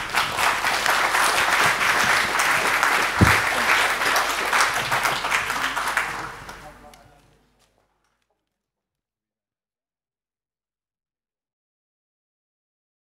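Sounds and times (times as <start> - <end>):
audience applauding: 0.0 - 7.5
dull low thump: 3.2 - 3.6.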